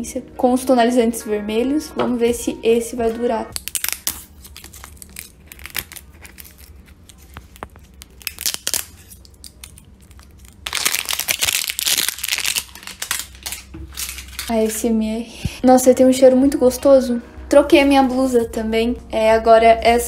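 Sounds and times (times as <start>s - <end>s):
plastic wrapping crinkling: 3.6s - 14.6s.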